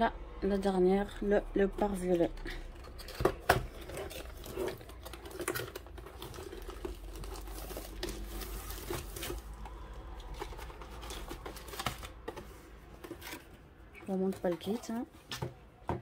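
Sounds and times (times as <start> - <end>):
plastic wrap rustling: 2.0 - 15.6
cardboard box scraping: 3.4 - 9.6.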